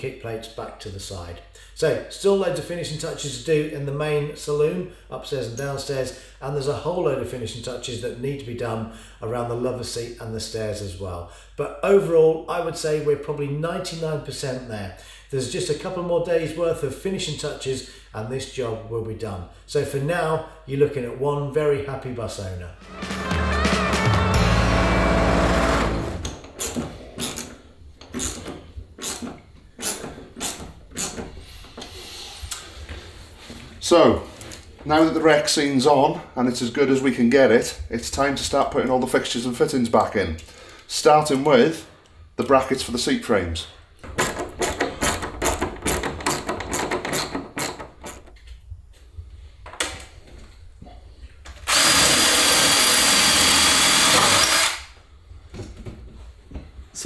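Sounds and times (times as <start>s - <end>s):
theme music: 22.8s - 26.3s
power drill running: 22.9s - 26.4s, 51.7s - 54.9s
hand tool clicking driving screw: 26.2s - 31.2s, 44.2s - 48.3s, 51.7s - 54.9s.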